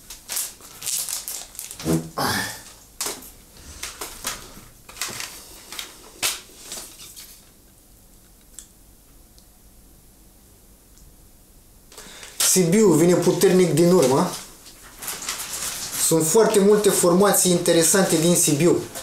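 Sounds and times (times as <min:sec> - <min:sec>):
cd package crinkling and clicking: 0:00.0 - 0:01.9, 0:02.6 - 0:07.4, 0:11.9 - 0:19.0.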